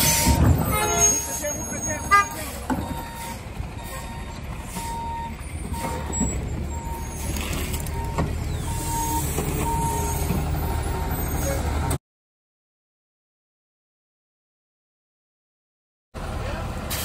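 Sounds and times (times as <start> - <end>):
reversing alarm beeping: 0.0 - 11.5
truck engine running: 0.0 - 12.0, 16.2 - 17.0.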